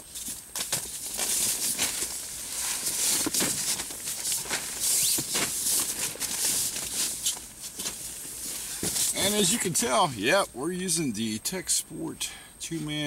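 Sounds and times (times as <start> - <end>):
nylon fabric rustling: 0.6 - 9.6.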